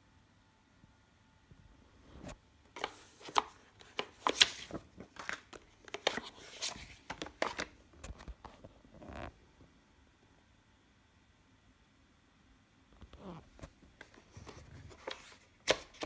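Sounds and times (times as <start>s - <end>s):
cardboard and paper rustling: 2.2s - 8.8s, 13.6s - 16.0s.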